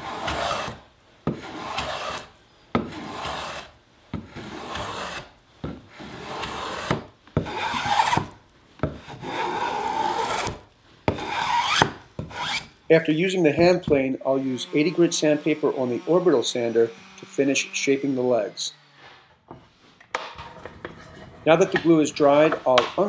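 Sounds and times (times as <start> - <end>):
hand plane rasping on wood: 0.0 - 5.3, 6.0 - 8.3, 8.9 - 12.7.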